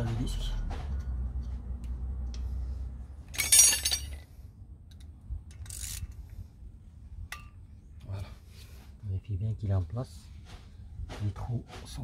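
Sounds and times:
steel tools clinking: 3.3s - 4.3s.

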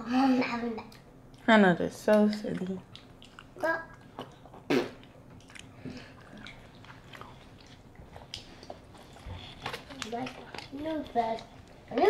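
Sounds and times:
close chewing sounds: 2.1s - 12.0s.

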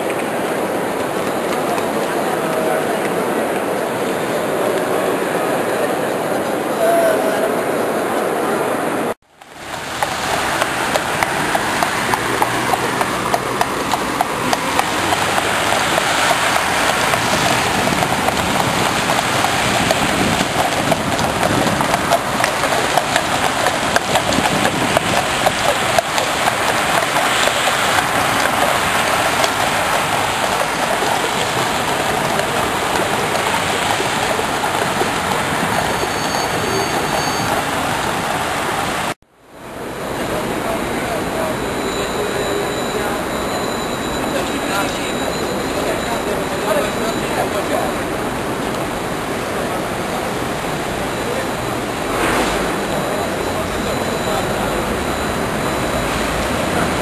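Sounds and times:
hooves clip-clopping on wet tarmac: 0.0s - 4.9s, 9.4s - 39.2s
rain hissing: 9.4s - 39.2s.

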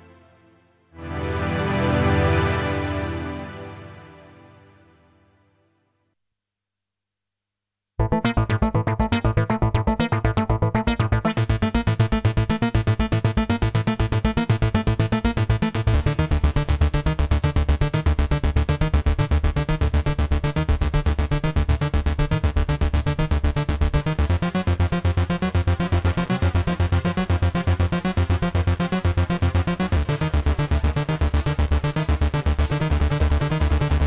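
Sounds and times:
looping synth bass sequence: 1.0s - 4.6s, 8.0s - 34.0s.

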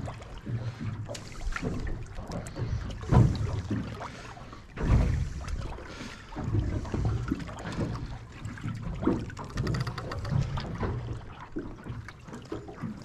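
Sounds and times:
water lapping against boat hull: 0.0s - 13.0s
small knocks and clicks: 9.0s - 11.1s.

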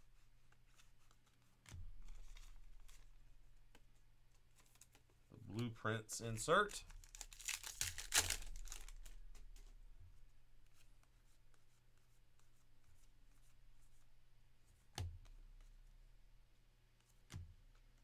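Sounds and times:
cards rustling: 0.1s - 12.6s
cards scraping and ticking: 6.3s - 9.7s.

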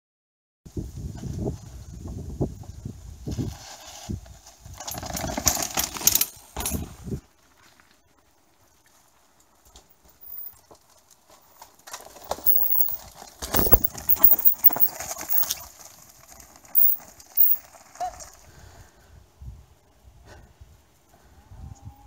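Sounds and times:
bike tyres crunching over stones: 3.3s - 18.2s
bike chain and frame clattering: 4.7s - 6.9s, 9.9s - 17.7s.

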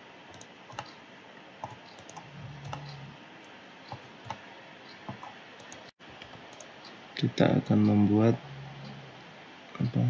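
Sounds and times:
faint low hum: 0.0s - 10.0s
low steady hiss: 0.0s - 10.0s
computer mouse clicking: 0.3s - 1.0s, 1.6s - 3.0s, 3.9s - 4.4s, 5.0s - 6.7s.

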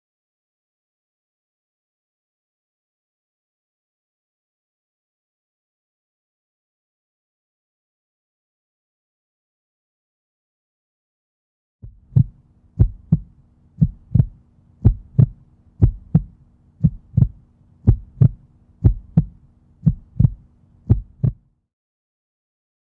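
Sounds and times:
heartbeat thumps: 11.8s - 21.4s
faint steady hum: 11.8s - 21.6s.

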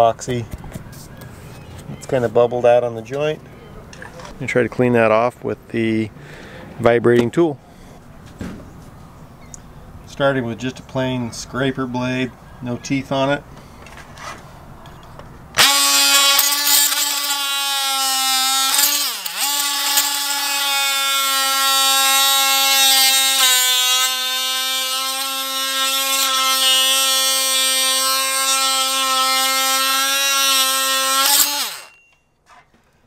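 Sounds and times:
oscillating multi-tool buzzing: 15.6s - 32.1s.

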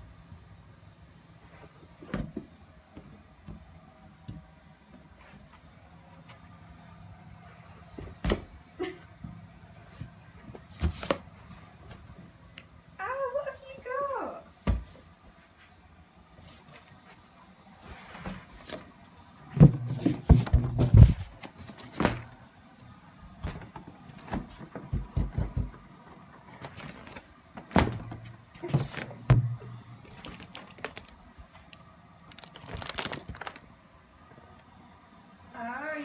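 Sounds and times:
knocks and thumps: 19.5s - 22.3s, 23.4s - 26.0s.

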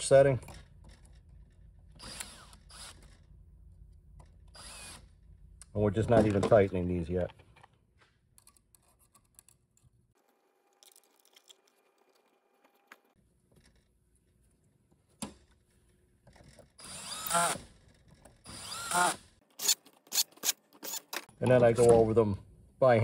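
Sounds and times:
cordless drill whine: 2.0s - 3.3s, 4.5s - 5.2s, 16.8s - 17.6s, 18.5s - 19.8s.

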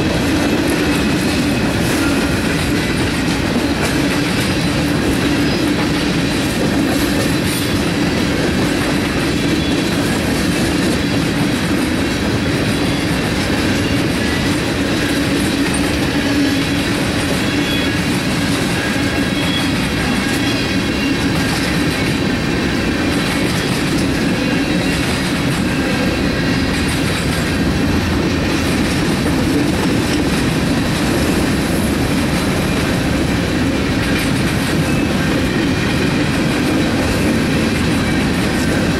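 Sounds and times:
freight train wheels on rails: 0.0s - 38.9s.

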